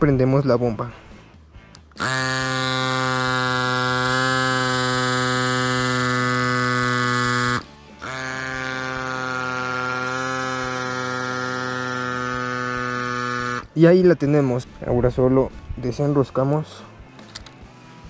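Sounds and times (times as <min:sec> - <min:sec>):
electric pump buzzing: 0:01.9 - 0:14.5.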